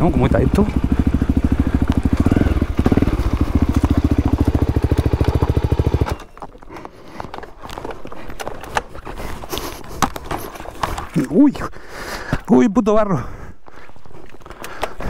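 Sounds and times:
single-cylinder engine thumping: 0.4s - 6.3s.

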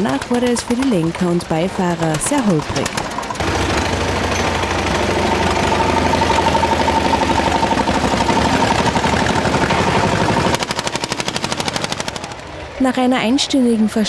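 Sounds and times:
rapid even knocking: 0.0s - 6.1s
diesel tractor engines running: 0.0s - 14.0s.

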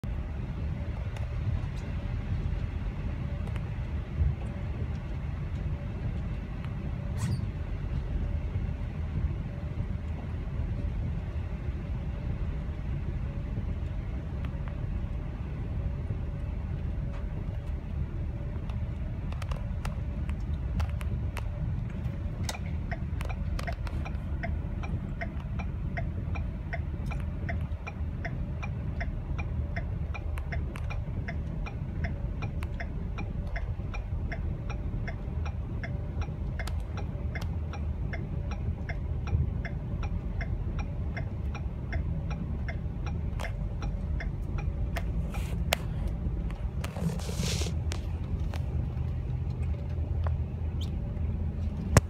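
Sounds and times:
car rumble on wet road: 0.0s - 52.0s
turn signal ticking: 16.3s - 46.8s, 47.8s - 52.0s.

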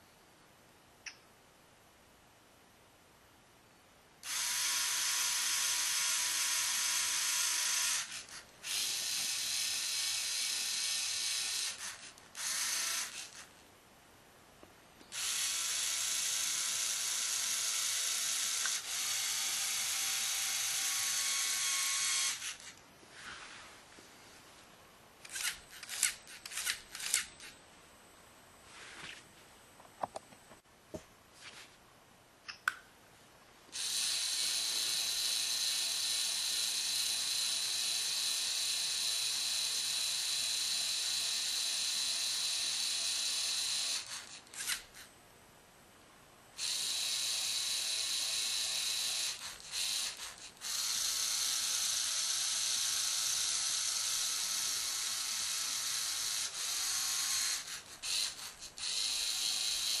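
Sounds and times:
sharp clicks: 32.4s - 32.9s.

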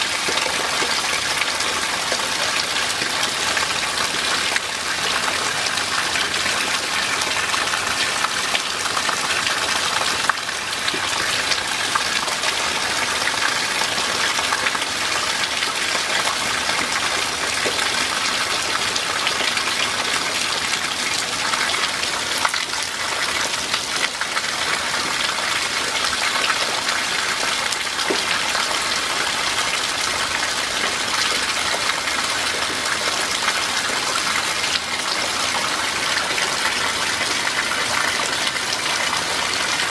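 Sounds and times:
steady rain: 0.0s - 39.9s.

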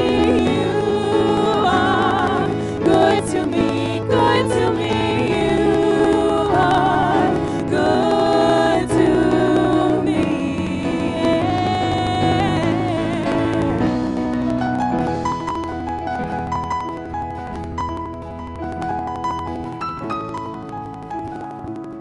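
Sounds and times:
women singing in harmony: 0.0s - 14.8s
instrumental accompaniment: 0.0s - 22.0s.

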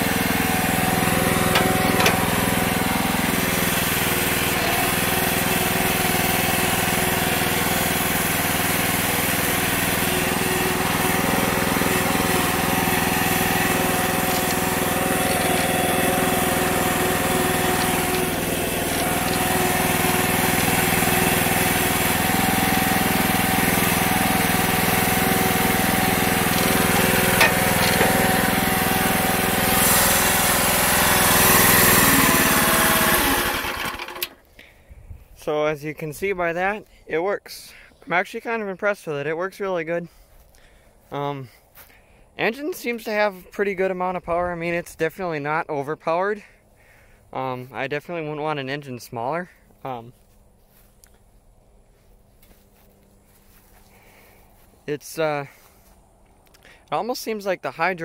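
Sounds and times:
small tractor engine running: 0.0s - 34.8s, 49.6s - 54.8s.

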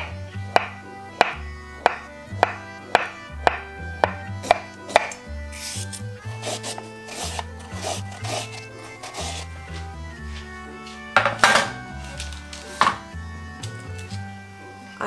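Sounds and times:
peeler scraping cucumber: 4.4s - 9.9s
knife knocking on cutting board: 11.2s - 11.8s.

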